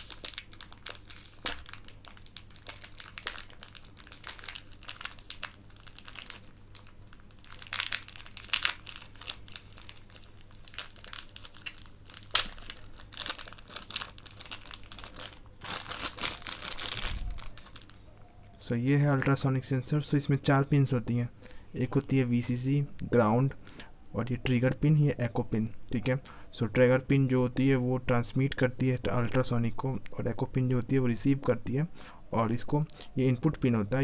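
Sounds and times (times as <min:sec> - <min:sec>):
plastic bag crinkling: 0:00.0 - 0:18.0.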